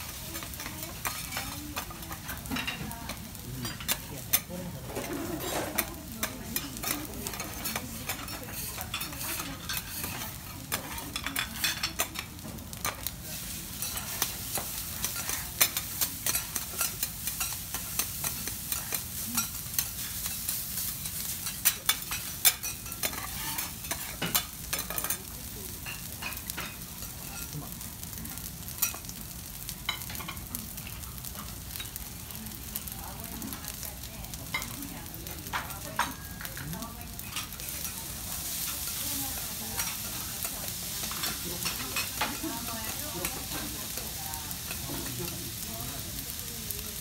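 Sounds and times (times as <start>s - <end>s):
rice sizzling on griddle: 0.0s - 47.0s
metal spatulas clacking and scraping: 3.6s - 13.0s, 13.8s - 25.2s.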